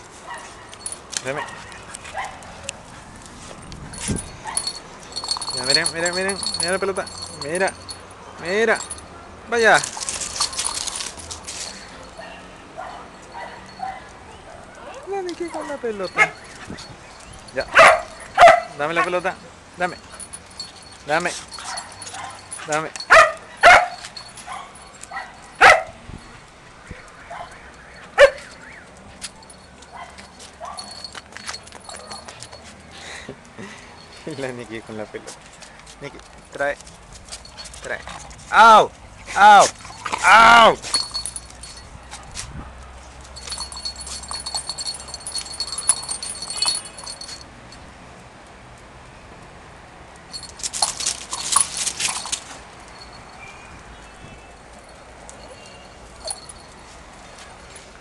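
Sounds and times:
dog paws clicking on concrete: 0.0 - 47.5, 50.1 - 53.4, 54.0 - 58.0
light jingling: 0.0 - 48.2, 50.1 - 58.0
dog barking: 12.2 - 15.0, 17.7 - 18.8, 23.1 - 26.0, 28.2 - 28.5.

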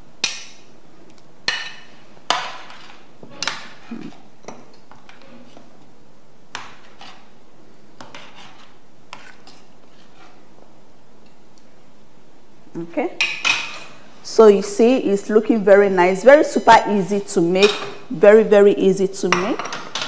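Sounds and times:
food being stirred: 0.2 - 11.7.

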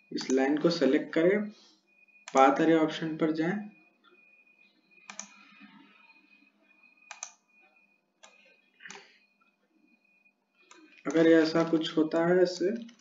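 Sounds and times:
computer mouse clicking: 0.2 - 0.4, 5.0 - 5.6, 7.0 - 7.4, 8.2 - 9.1, 10.6 - 11.8, 12.8 - 13.0.

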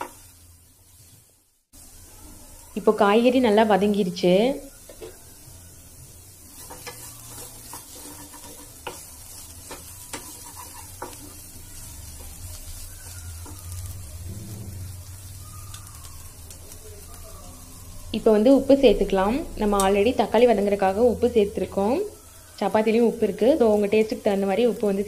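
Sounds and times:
vegetables sizzling: 0.0 - 25.0
wooden spatula scraping pan: 6.5 - 11.4.

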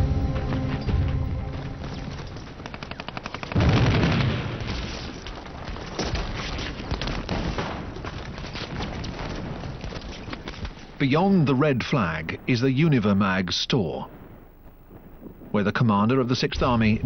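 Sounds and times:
machine-gun fire: 2.0 - 6.4
scattered gunshots: 2.0 - 10.3
loud explosion: 3.6 - 5.0.

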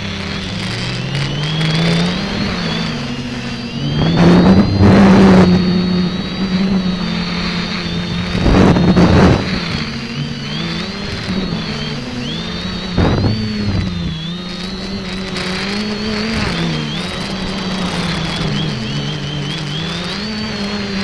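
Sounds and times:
drone propellers droning: 0.0 - 21.0
high whine: 0.0 - 21.0
wind buffeting microphone: 3.4 - 11.7, 12.6 - 15.7.

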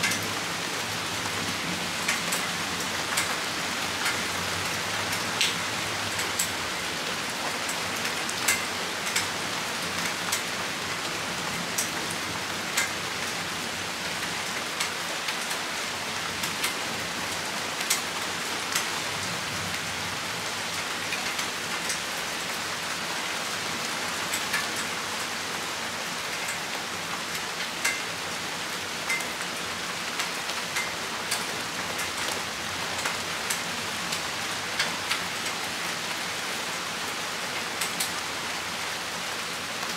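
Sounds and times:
steady rain hiss: 0.0 - 39.9
sharp taps of raindrops: 2.0 - 4.3, 5.1 - 5.6, 7.4 - 10.6, 11.7 - 12.0, 12.7 - 13.0, 14.2 - 15.6, 17.8 - 19.0, 26.3 - 28.2, 29.0 - 29.5, 30.1 - 35.6, 37.6 - 38.2.

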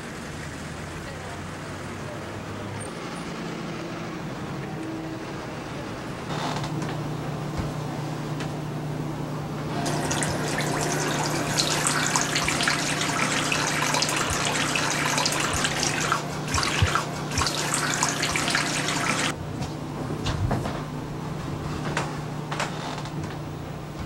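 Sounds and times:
tap running into steel sink: 9.8 - 19.3
hands splashing under water: 9.9 - 19.3.

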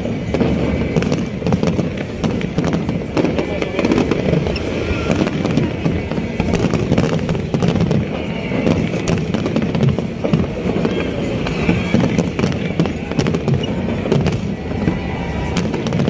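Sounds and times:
fireworks bangs and crackles: 0.0 - 16.0.

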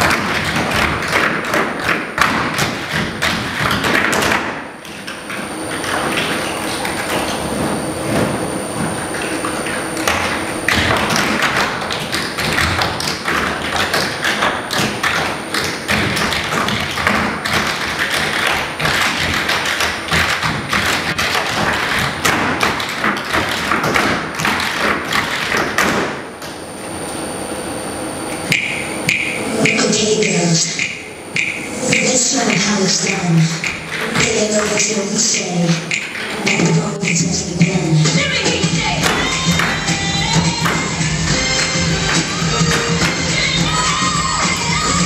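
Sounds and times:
tap shoes striking stage floor: 0.0 - 26.5, 35.7 - 45.0.

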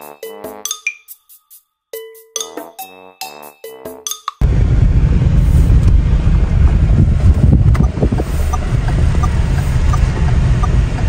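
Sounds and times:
wind buffeting microphone: 4.4 - 11.0
turn signal ticking: 6.6 - 11.0.

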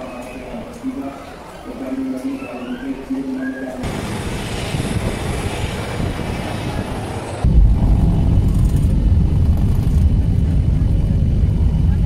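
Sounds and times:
jet engine hiss: 3.8 - 11.8
low rumble of plane rolling: 3.8 - 12.0.

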